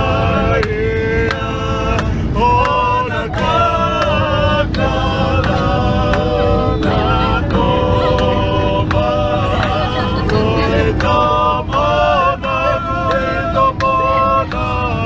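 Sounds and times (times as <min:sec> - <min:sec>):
aircraft cabin drone: 0:00.0 - 0:15.0
group singing in harmony: 0:00.0 - 0:15.0.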